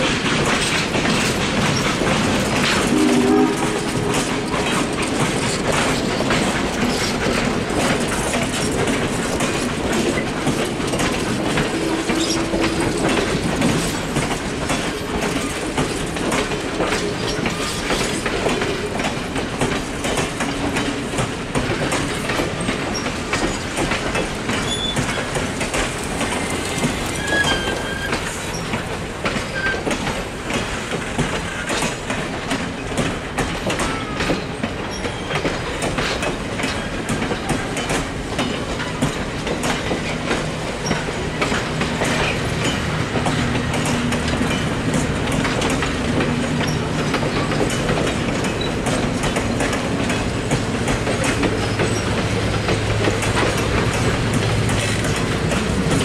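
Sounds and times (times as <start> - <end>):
train coaches rolling past: 0.0 - 56.0
wheels clicking over rail joints: 0.0 - 56.0
wheel squeals: 24.5 - 25.4, 26.3 - 28.8, 29.4 - 29.9.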